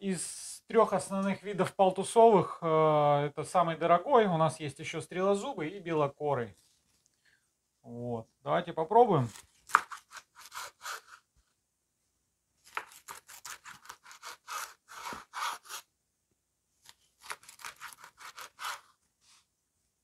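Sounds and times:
knife slicing fish on board: 0:09.7 - 0:11.2, 0:12.7 - 0:15.8.

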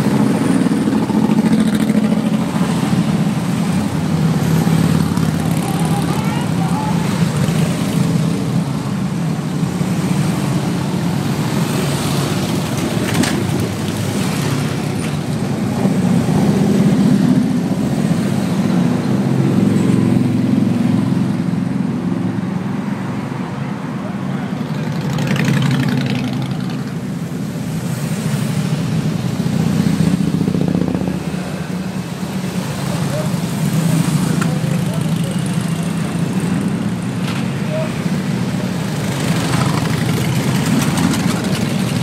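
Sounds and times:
motorcycle engines droning: 0:00.0 - 0:22.6, 0:23.6 - 0:42.0
car passing: 0:22.8 - 0:42.0.

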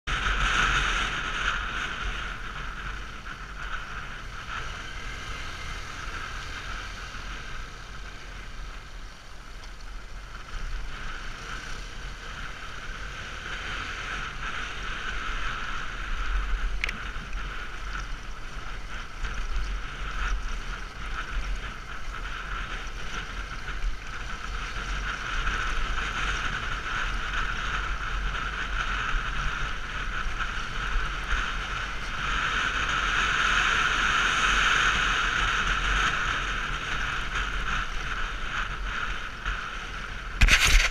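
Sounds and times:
road noise: 0:00.0 - 0:40.9
muffled motorcycle engine: 0:00.1 - 0:40.9
wind rumble on microphone: 0:00.1 - 0:40.9
sharp tick: 0:16.7 - 0:18.1.

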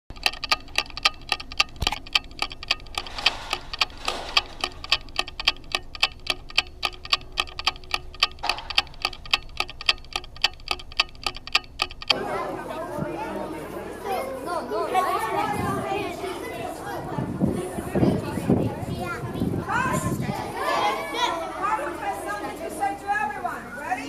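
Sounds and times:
rapid mechanical clicking: 0:00.1 - 0:12.2
faint murmuring: 0:12.1 - 0:24.0.

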